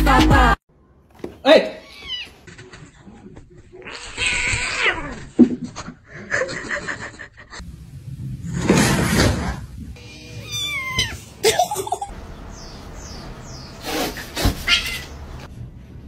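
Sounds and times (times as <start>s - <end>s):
cats and kittens meowing: 1.8s - 2.5s, 3.8s - 5.4s, 10.0s - 12.0s, 14.2s - 15.5s.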